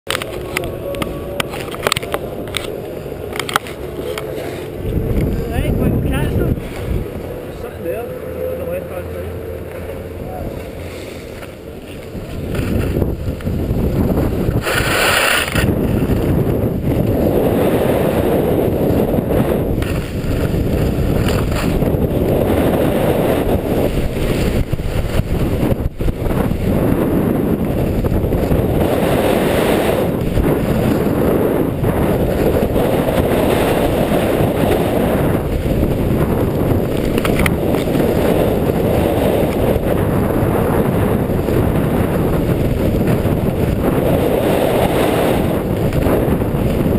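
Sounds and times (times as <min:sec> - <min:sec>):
wind on microphone: 0:00.1 - 0:46.9
skis scraping on snow: 0:10.5 - 0:46.9.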